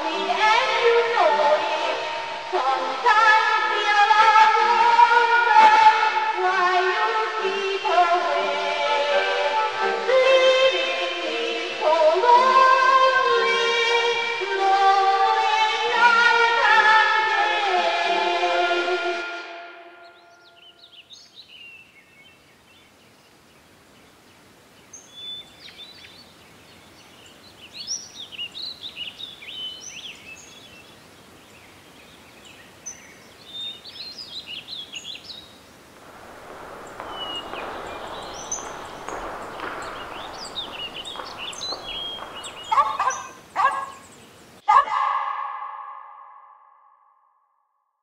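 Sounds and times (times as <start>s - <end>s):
birds chirping: 20.0s - 44.6s
rushing noise: 36.0s - 44.0s.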